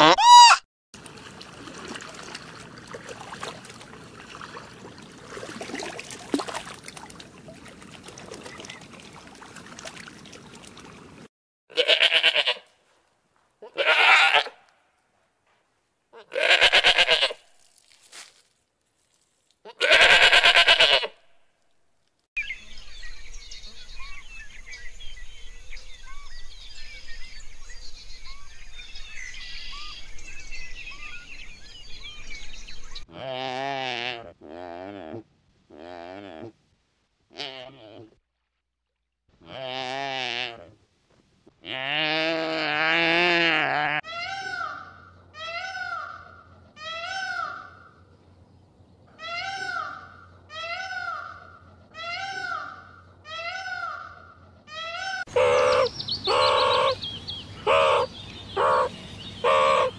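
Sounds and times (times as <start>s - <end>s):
farm animal bleating: 0.0s - 0.3s, 11.7s - 12.7s, 13.6s - 14.6s, 16.1s - 17.4s, 19.6s - 21.2s, 33.1s - 36.5s, 39.4s - 40.7s, 41.6s - 46.1s.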